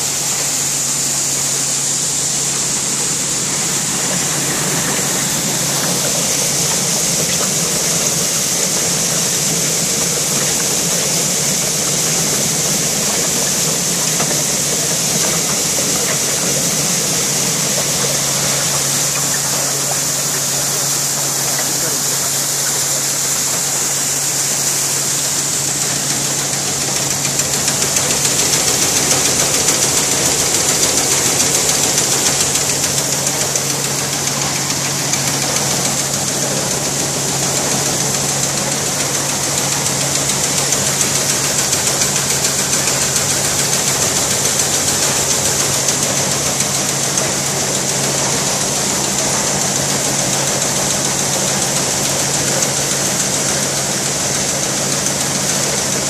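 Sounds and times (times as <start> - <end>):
seed-cleaning machine hum: 0.0 - 56.0.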